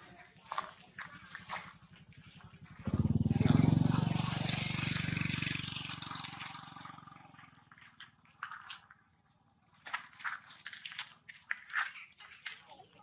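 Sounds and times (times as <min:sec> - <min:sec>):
vehicle engine passing by: 0:00.5 - 0:08.0.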